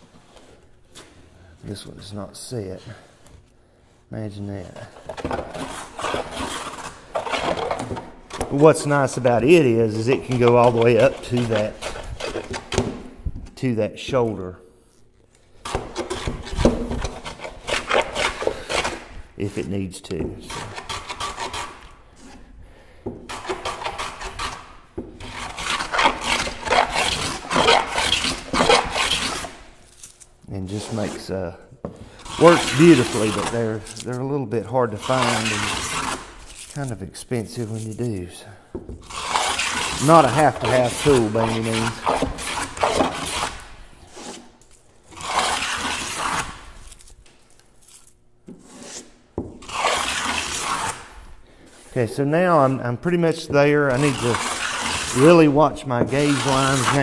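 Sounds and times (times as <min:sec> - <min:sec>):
hand plane shaving wood: 0:05.2 - 0:13.0, 0:15.7 - 0:19.1, 0:20.4 - 0:22.4, 0:23.3 - 0:29.6, 0:32.2 - 0:34.0, 0:34.9 - 0:36.3, 0:39.1 - 0:44.5, 0:45.1 - 0:46.6, 0:48.5 - 0:51.0, 0:53.8 - 0:57.0.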